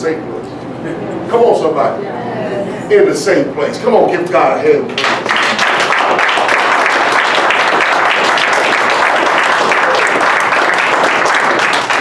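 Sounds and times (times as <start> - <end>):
people applauding: 5.0 - 12.0.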